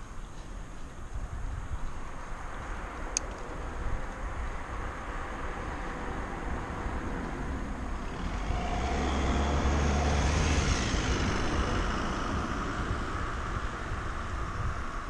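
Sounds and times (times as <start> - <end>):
car overtaking: 5.1 - 15.0.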